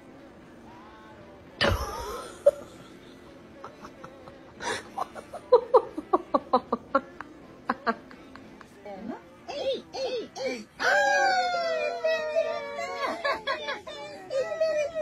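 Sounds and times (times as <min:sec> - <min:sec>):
person laughing: 0:01.6 - 0:08.3.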